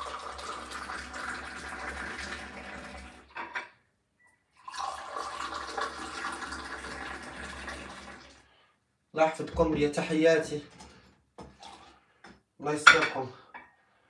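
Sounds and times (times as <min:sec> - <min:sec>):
tea pouring into a glass: 0:00.0 - 0:03.2, 0:04.6 - 0:08.4, 0:11.6 - 0:11.9.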